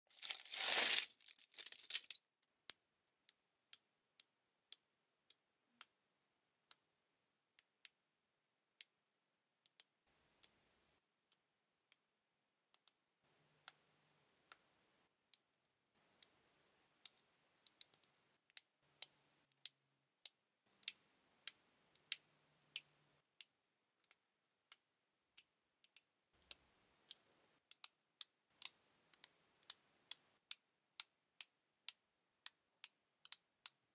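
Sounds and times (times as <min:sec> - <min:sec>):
rustling clatter: 0:00.1 - 0:02.2.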